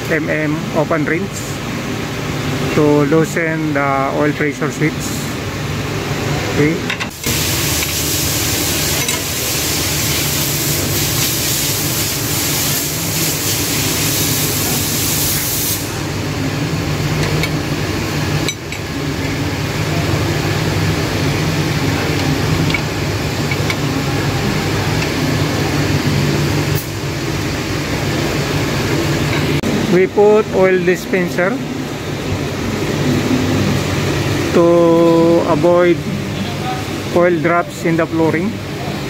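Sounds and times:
loud even hiss: 7.1s - 16.1s.

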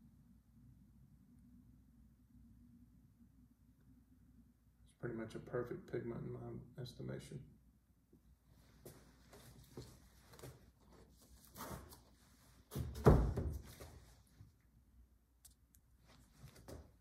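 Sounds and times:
canvas thumping against wall: 12.7s - 14.0s.

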